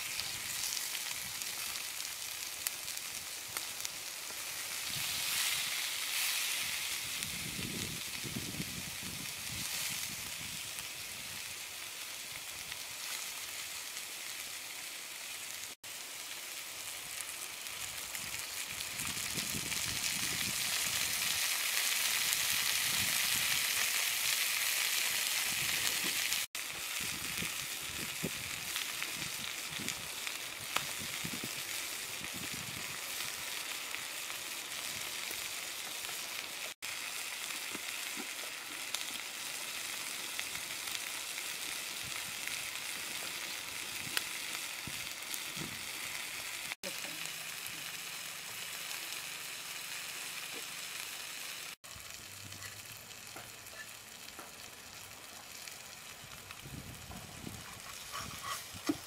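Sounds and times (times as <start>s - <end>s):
food sizzling on hot stone: 0.0s - 59.0s.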